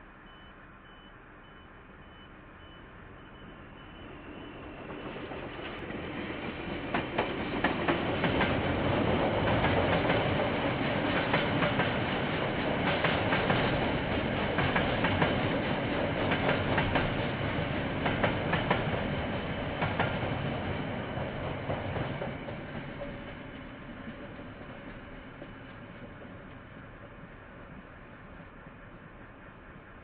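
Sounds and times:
freight train rumbling past: 0:02.9 - 0:30.0.

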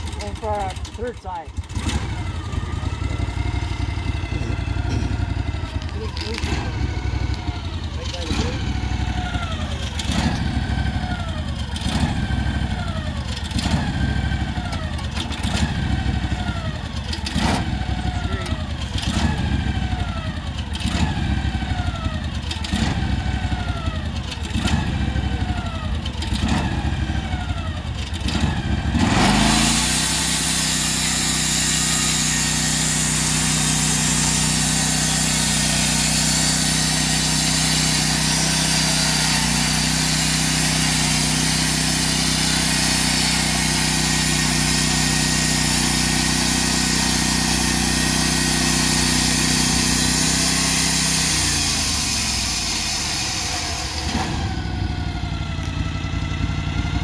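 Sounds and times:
sawmill engine running: 0:00.0 - 0:57.0
band saw blade cutting log: 0:28.9 - 0:55.0.

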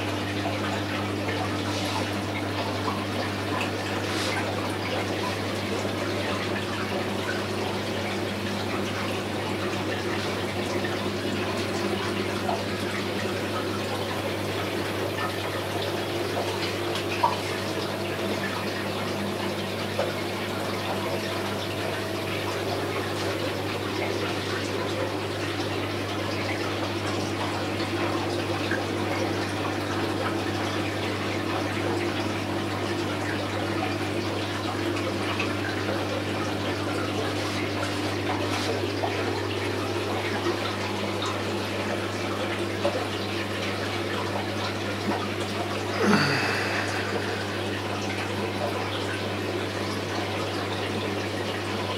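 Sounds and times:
aquarium air bubbling: 0:00.0 - 0:51.9
low electrical hum: 0:00.0 - 0:51.9
water splashing: 0:45.9 - 0:49.6.

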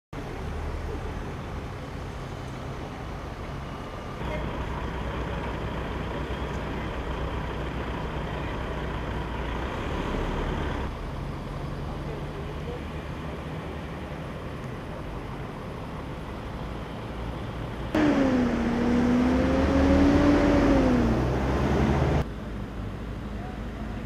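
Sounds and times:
outdoor background noise: 0:00.1 - 0:24.0
vehicle engines idling: 0:00.2 - 0:24.0.

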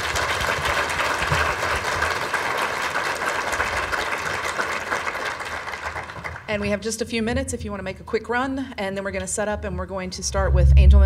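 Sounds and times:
audience applauding: 0:00.0 - 0:06.5.

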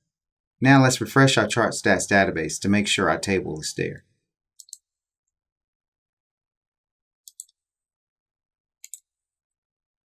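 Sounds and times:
computer mouse clicks: 0:04.6 - 0:04.9, 0:07.2 - 0:07.6, 0:08.8 - 0:09.2.

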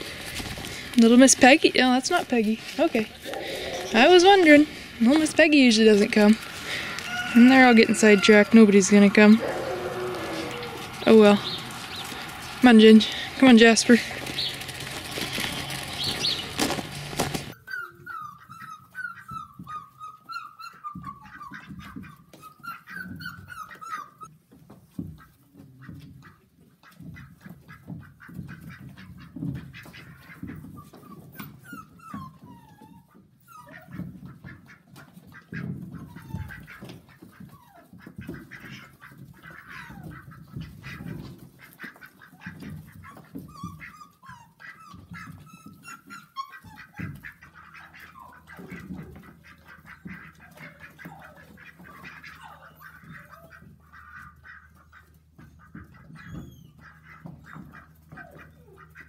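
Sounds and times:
ducks quacking: 0:00.0 - 0:17.6, 0:25.2 - 0:30.7, 0:33.7 - 0:45.4, 0:46.4 - 0:59.0
scuffling in straw: 0:02.1 - 0:17.6
puppy yips: 0:17.5 - 0:24.3, 0:30.7 - 0:34.2, 0:35.6 - 0:38.2, 0:42.4 - 0:48.9, 0:50.4 - 0:53.7, 0:56.0 - 0:59.0.

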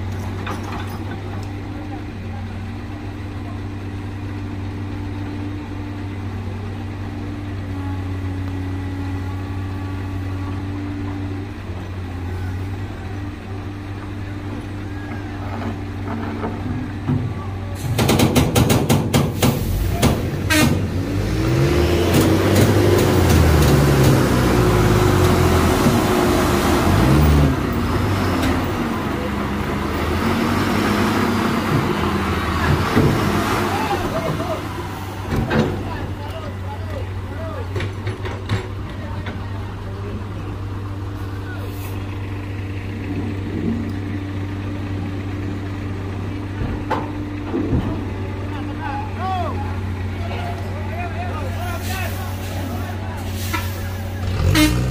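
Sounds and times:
diesel engines running: 0:00.0 - 0:54.9
tyres spinning on road: 0:00.0 - 0:54.9
truck diesel engine revving hard: 0:19.4 - 0:35.9, 0:51.8 - 0:54.9.

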